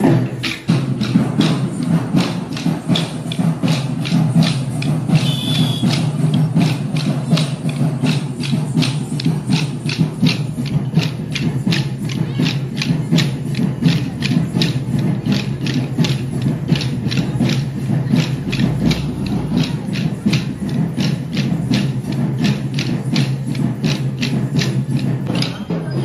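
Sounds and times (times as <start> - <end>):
wooden sticks clacking: 0.4 - 26.0.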